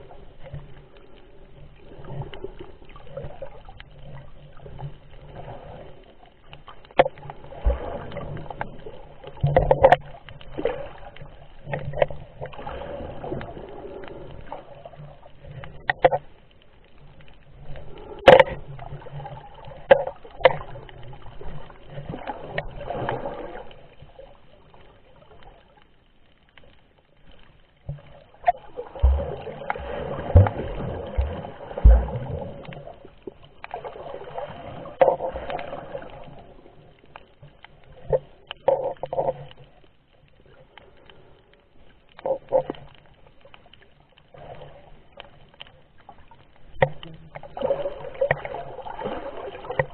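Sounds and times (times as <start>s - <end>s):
muffled underwater water swishing: 0.0s - 49.9s
low thumps: 30.2s - 32.4s.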